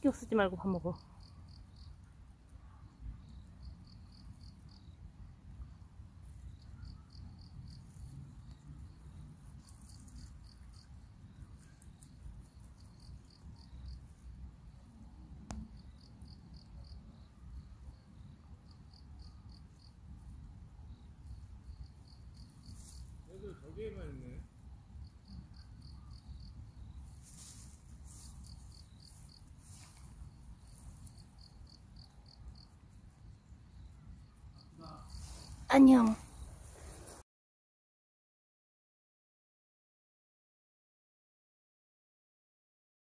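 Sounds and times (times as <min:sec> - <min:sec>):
crickets chirping: 0:00.0 - 0:37.2
rabbit nibbling clover: 0:07.8 - 0:14.3.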